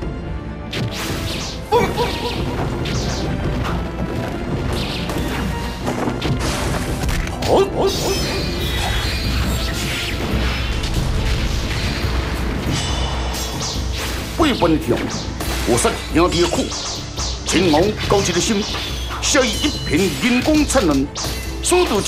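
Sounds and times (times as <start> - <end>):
background music: 0.0 - 22.0.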